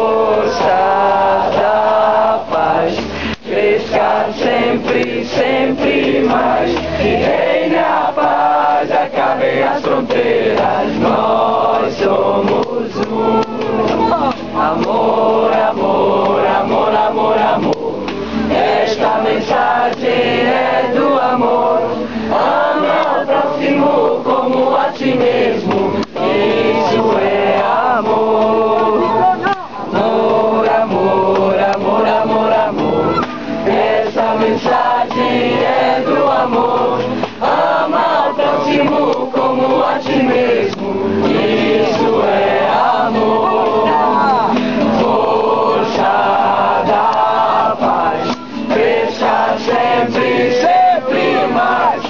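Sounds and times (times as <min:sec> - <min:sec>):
group singing a chant: 0:00.0 - 0:52.0.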